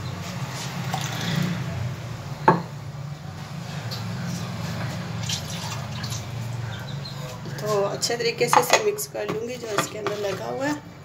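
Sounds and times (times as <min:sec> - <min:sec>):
kitchenware clink: 0:08.5 - 0:10.5.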